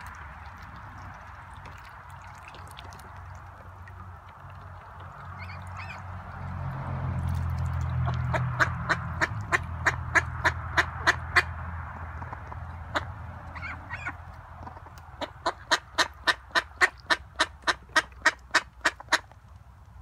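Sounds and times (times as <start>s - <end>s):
ducks quacking: 5.2s - 6.3s, 7.8s - 19.3s.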